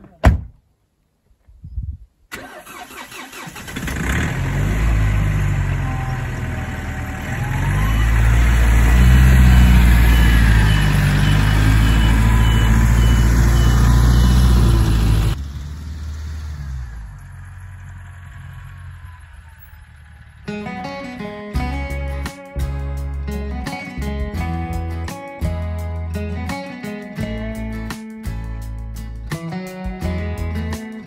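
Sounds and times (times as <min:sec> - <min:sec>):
pickup truck engine running: 0:03.7 - 0:20.6.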